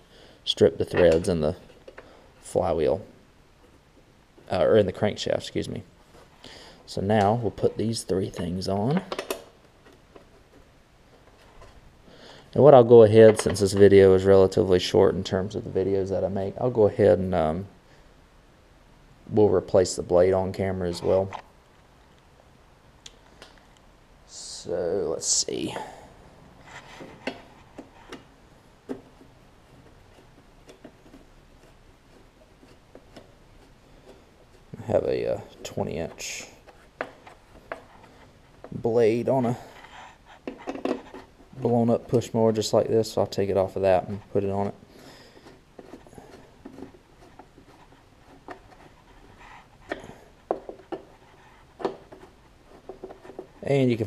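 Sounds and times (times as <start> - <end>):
nut driver scraping and ticking: 28.9 - 39.6, 43.3 - 54.0.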